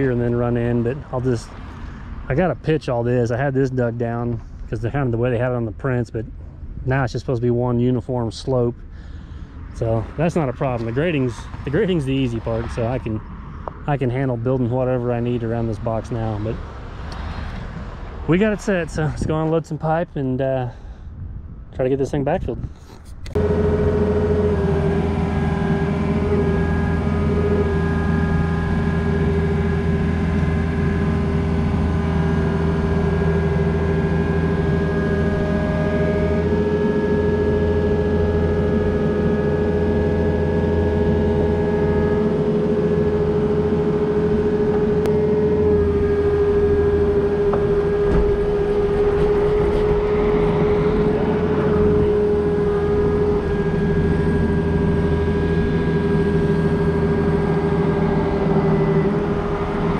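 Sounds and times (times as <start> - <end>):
excavator diesel engine running: 23.2 - 59.9
steady high tone: 23.3 - 59.9.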